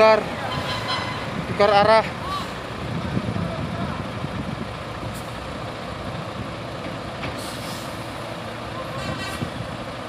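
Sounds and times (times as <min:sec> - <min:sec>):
truck diesel engine running: 0:00.0 - 0:10.0
air brake hiss: 0:07.4 - 0:08.1.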